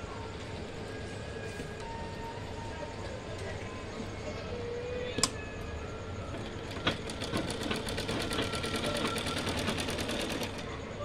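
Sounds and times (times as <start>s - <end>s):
sewing machine stitching: 6.7s - 10.6s.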